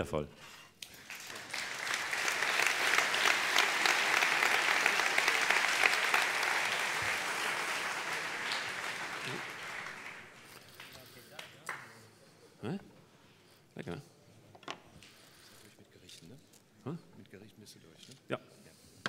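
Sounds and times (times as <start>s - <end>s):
audience applauding: 0.8s - 11.9s.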